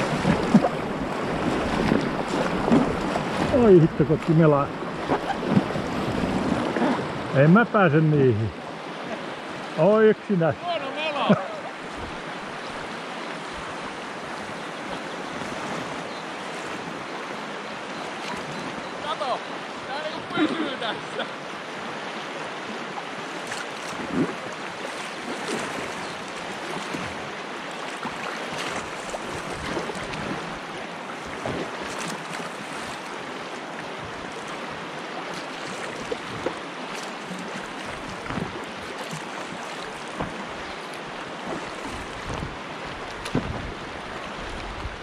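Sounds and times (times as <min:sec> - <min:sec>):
small water splashes: 0:00.0 - 0:07.2, 0:21.6 - 0:45.0
river rapid rushing: 0:00.0 - 0:45.0.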